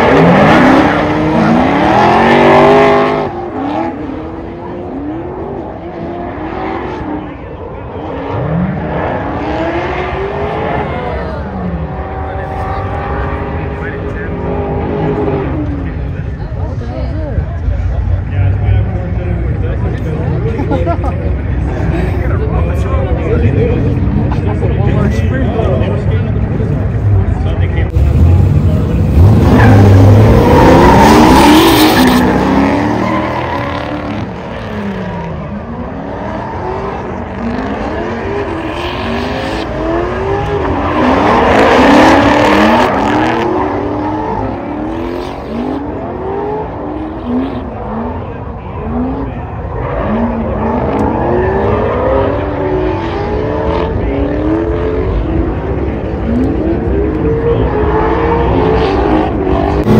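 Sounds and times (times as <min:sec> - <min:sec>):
car engines revving: 0:00.0 - 0:59.9.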